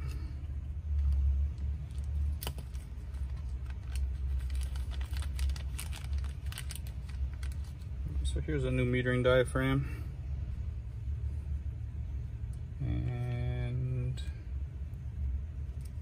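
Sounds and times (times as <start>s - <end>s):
low steady rumble: 0.0s - 16.0s
plastic bag crinkling: 1.0s - 8.1s.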